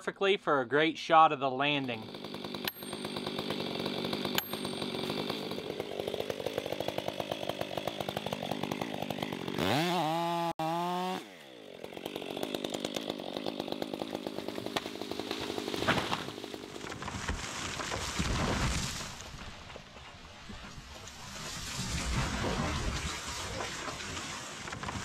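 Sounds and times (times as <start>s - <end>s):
chainsaw idling and revving: 1.7s - 21.4s, 22.4s - 25.0s
tree cracking and crashing: 11.5s - 25.0s.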